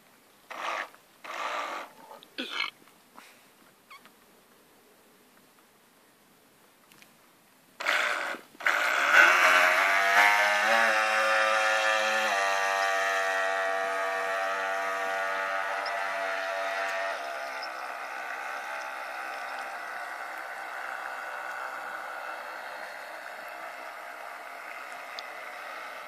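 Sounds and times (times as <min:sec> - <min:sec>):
model boat electric motor whine: 0:00.5 - 0:02.0, 0:07.8 - 0:26.0.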